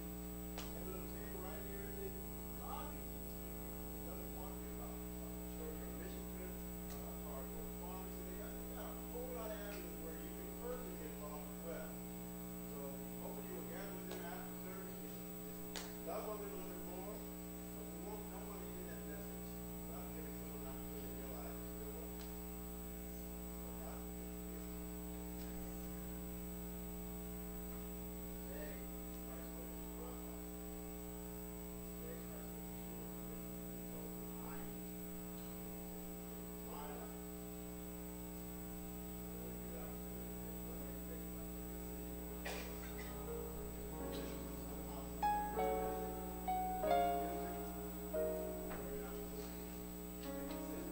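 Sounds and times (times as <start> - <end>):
electrical mains hum: 0.0 - 50.9
faint music: 42.3 - 50.9.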